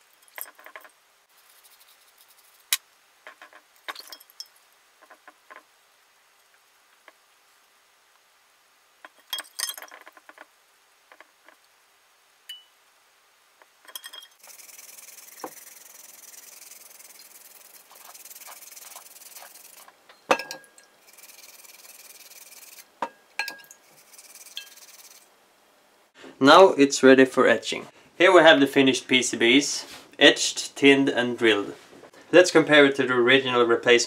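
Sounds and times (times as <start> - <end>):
toothbrush scrubbing board: 14.4 - 19.9, 21.1 - 22.9, 23.9 - 25.2
board clinking against glass dish: 20.2 - 20.9.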